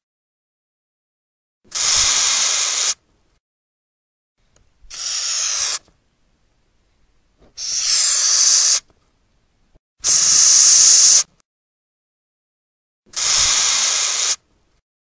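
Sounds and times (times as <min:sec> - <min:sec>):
cockroach hissing: 0:01.7 - 0:03.0, 0:04.9 - 0:05.8, 0:07.6 - 0:08.8, 0:10.0 - 0:11.3, 0:13.2 - 0:14.4.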